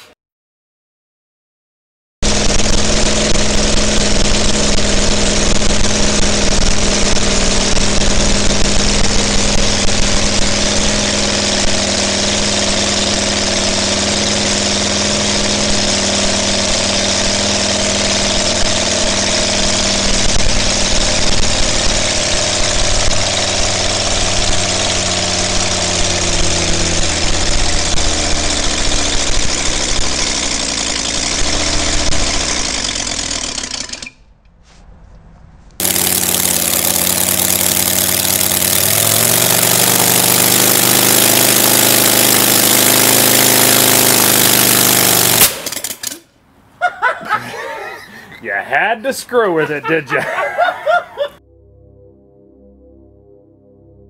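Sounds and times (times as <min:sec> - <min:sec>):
model radial engine running: 0:02.2 - 0:34.2, 0:35.8 - 0:46.3.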